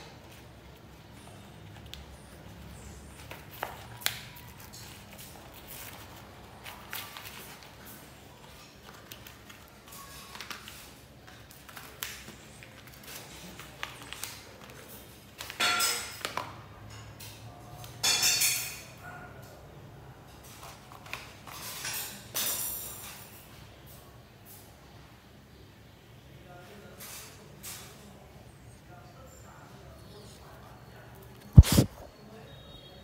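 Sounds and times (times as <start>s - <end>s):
puppy chewing cardboard box: 31.3s - 32.0s.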